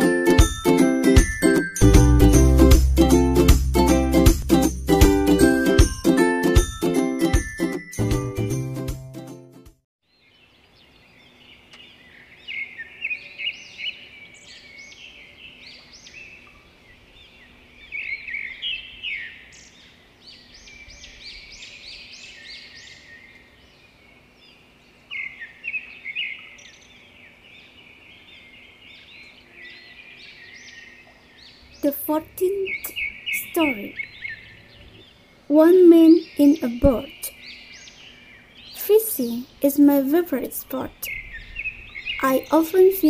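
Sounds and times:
small birds chirping and twittering: 10.0 - 43.0.

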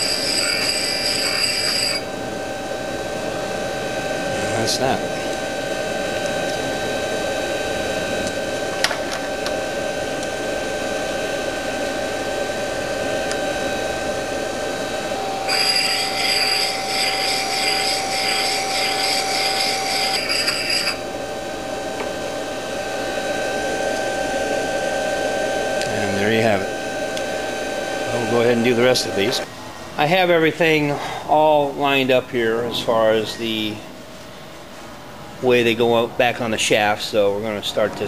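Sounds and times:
grinder motor running: 0.0 - 2.1, 13.3 - 21.4
stone wheel grinding metal: 0.0 - 2.1, 14.9 - 21.0.

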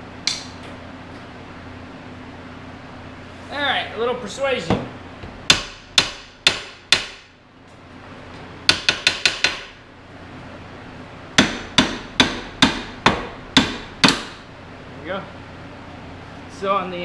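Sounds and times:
hammer striking metal: 5.5 - 7.3, 11.4 - 14.4.

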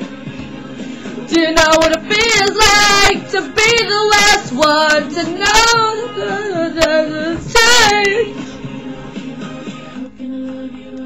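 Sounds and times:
high-pitched singing voice: 1.3 - 8.6.

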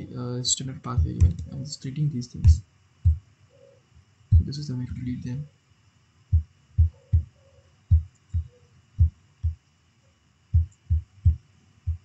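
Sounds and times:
faint steady high whine: 0.0 - 12.0
soft low thuds: 0.9 - 1.6, 2.4 - 3.2, 4.3 - 4.6, 6.3 - 7.3, 7.9 - 9.6, 10.5 - 12.0.

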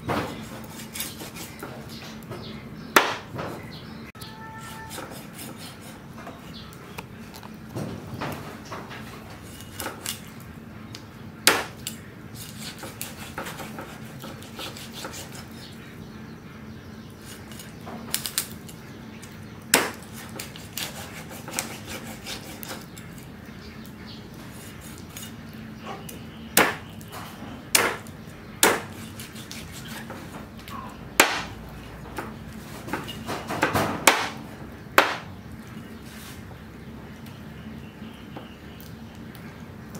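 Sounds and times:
cleaver chopping fish on wood: 3.0 - 3.3, 11.5 - 11.8, 19.7 - 22.8, 26.6 - 26.9, 27.7 - 30.2, 31.2 - 31.6, 32.2 - 34.4, 35.0 - 35.3.

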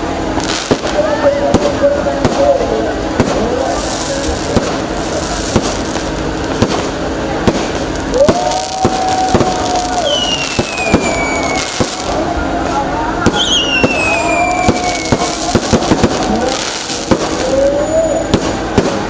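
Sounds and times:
fireworks bangs and crackle: 0.0 - 19.0
descending firework whistle: 8.0 - 18.9.

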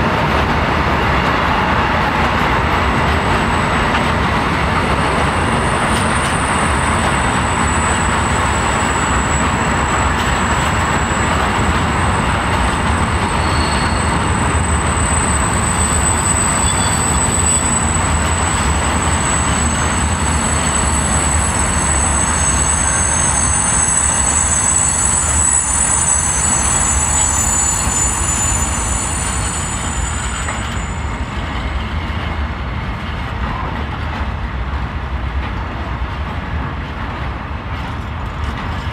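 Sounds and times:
train wheels rumbling on rails: 0.0 - 38.9
high wheel squealing: 4.9 - 32.4.

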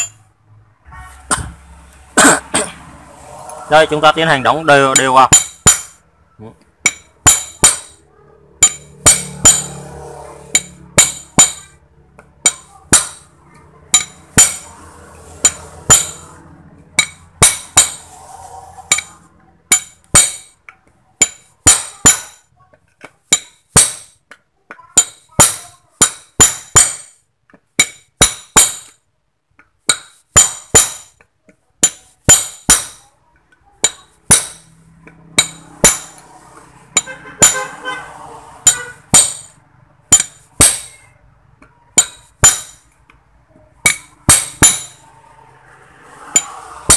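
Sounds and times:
hammer striking steel punch: 4.8 - 6.0, 6.8 - 8.0, 8.6 - 11.8, 12.4 - 13.3, 13.9 - 14.8, 15.4 - 16.3, 17.0 - 18.2, 18.9 - 20.5, 21.2 - 22.4, 23.3 - 24.2, 25.0 - 27.2, 27.8 - 29.0, 29.9 - 31.2, 31.8 - 33.0, 33.8 - 34.7, 35.4 - 36.3, 36.9 - 37.8, 38.6 - 41.1, 41.9 - 42.9, 43.8 - 45.0, 46.3 - 46.9.

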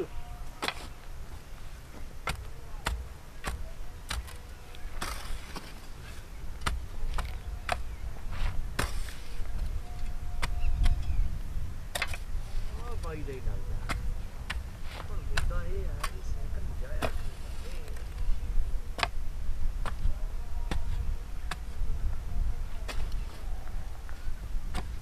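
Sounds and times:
wind rumble on microphone: 0.0 - 25.0
hand tool chopping dry ground: 0.6 - 1.0, 2.0 - 9.8, 11.9 - 16.3, 16.9 - 18.3, 18.9 - 19.2, 19.8 - 20.1, 20.7 - 21.8, 22.8 - 23.4, 24.6 - 25.0.

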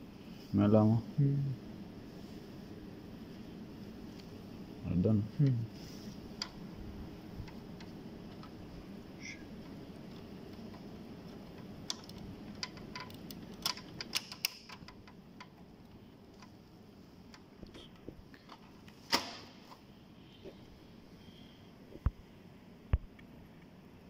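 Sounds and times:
low background noise: 0.0 - 24.0
plastic clicks: 9.6 - 15.6.

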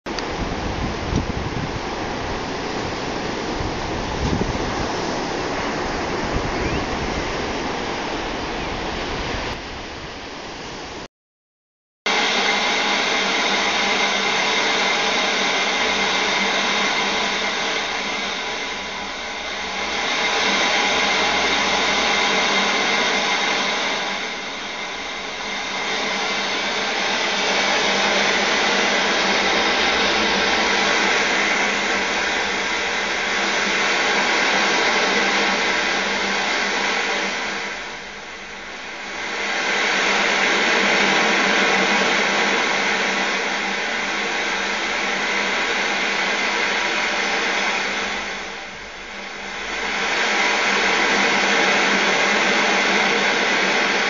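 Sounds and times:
surf breaking on beach: 0.3 - 10.2.

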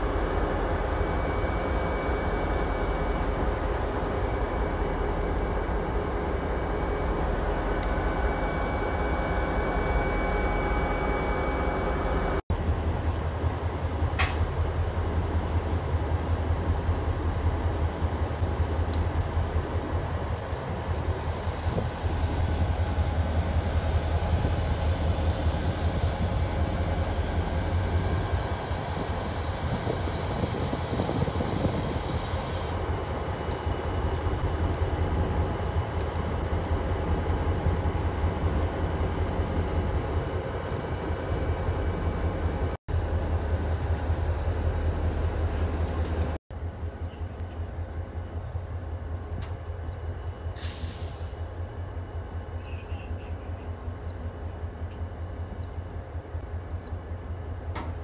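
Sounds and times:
locomotive engine drone: 0.0 - 58.0
loud hiss: 20.4 - 32.9.

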